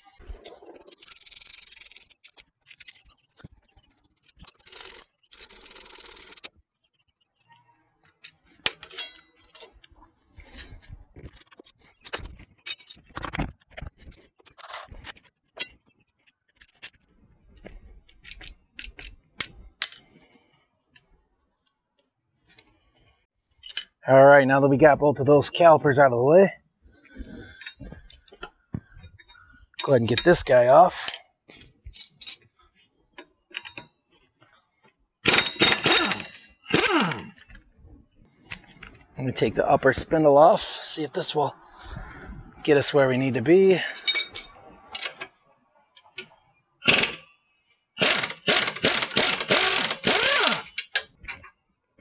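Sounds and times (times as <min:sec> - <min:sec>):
ratchet grinding on metal: 0:00.9 - 0:02.8, 0:04.4 - 0:06.5, 0:35.2 - 0:37.4, 0:46.8 - 0:47.3, 0:48.0 - 0:51.1
wrench and metal parts clinking: 0:08.0 - 0:13.3, 0:18.1 - 0:20.3, 0:23.6 - 0:24.0, 0:29.2 - 0:31.2, 0:31.8 - 0:32.6, 0:33.5 - 0:34.0, 0:35.2 - 0:37.7, 0:43.8 - 0:45.4, 0:46.0 - 0:47.4, 0:48.0 - 0:51.6.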